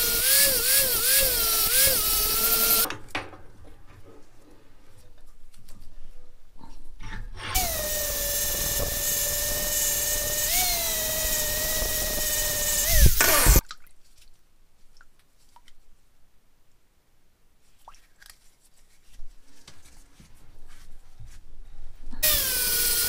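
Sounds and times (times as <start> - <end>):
angle grinder grinding steel: 0.0 - 2.9, 7.6 - 13.6, 22.2 - 23.0.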